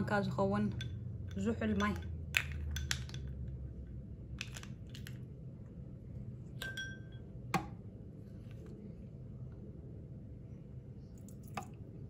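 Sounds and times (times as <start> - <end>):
ringing glass clink: 6.6 - 7.3.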